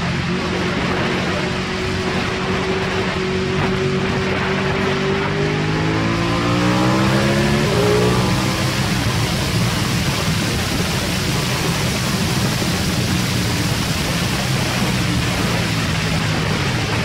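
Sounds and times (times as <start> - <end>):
motorcycle engine at steady revs: 0.0 - 17.0
wind rush on microphone: 0.0 - 17.0.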